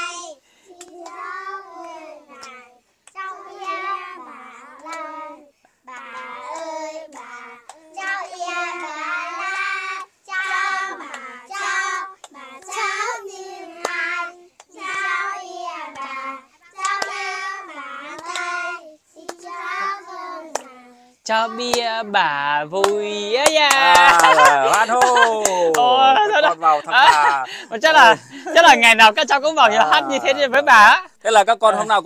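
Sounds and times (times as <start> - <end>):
children singing in unison: 0.0 - 22.0.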